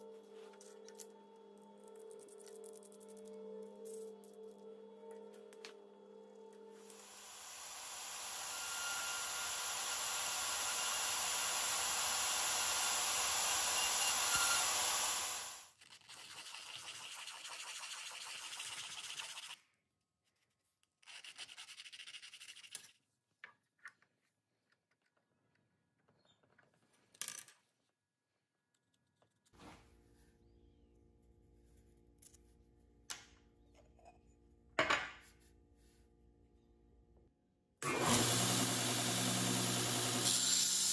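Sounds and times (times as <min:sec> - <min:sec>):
metal scraping on sandpaper: 0:15.8 - 0:19.6.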